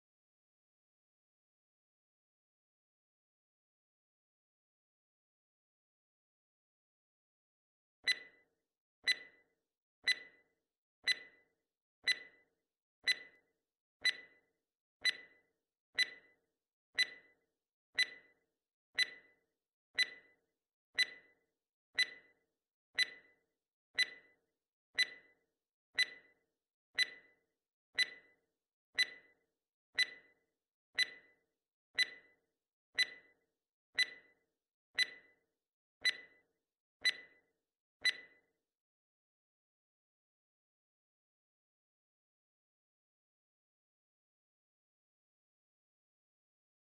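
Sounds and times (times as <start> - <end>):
clock-like timer ticks: 8.0 - 8.4, 9.0 - 16.4, 17.0 - 17.4, 18.0 - 18.4, 19.0 - 19.4, 20.0 - 20.4, 21.0 - 21.4, 22.0 - 22.4, 23.0 - 23.4, 24.0 - 24.4, 25.0 - 25.4, 26.0 - 26.4, 27.0 - 27.4, 28.0 - 28.4, 29.0 - 29.4, 30.0 - 30.4, 31.0 - 31.4, 32.0 - 32.4, 33.0 - 33.4, 34.0 - 34.4, 35.0 - 35.4, 36.0 - 38.4.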